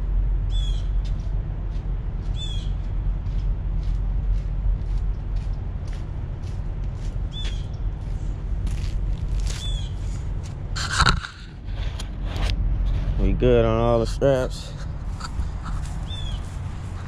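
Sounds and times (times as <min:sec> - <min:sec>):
trucks idling: 0:00.0 - 0:17.0
bird chirping: 0:00.5 - 0:01.0, 0:02.3 - 0:02.8, 0:09.6 - 0:10.0, 0:15.5 - 0:16.5
footsteps on gravelly pavement: 0:01.0 - 0:10.7, 0:14.1 - 0:17.0.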